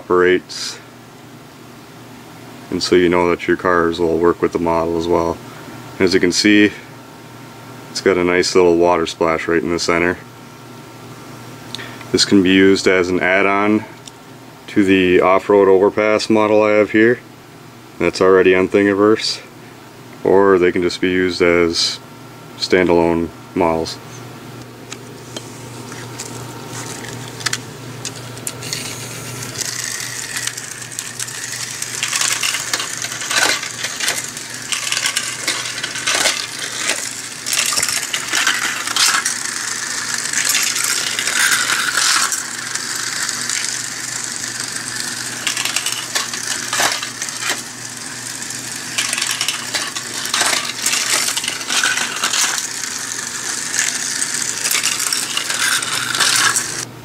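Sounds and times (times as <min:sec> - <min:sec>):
toy cars whirring: 0:25.9 - 0:56.9
clicks and clatter on plastic track: 0:29.6 - 0:56.8.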